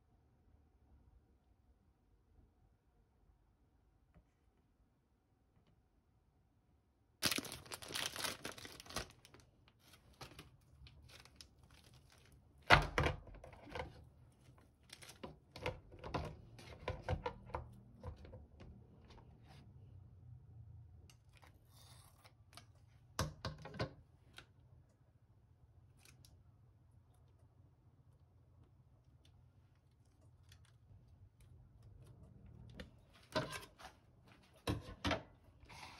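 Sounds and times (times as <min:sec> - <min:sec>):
packaging tearing: 0:07.2 - 0:12.4
dry noodle sheets crinkling: 0:07.2 - 0:12.7, 0:14.3 - 0:15.3.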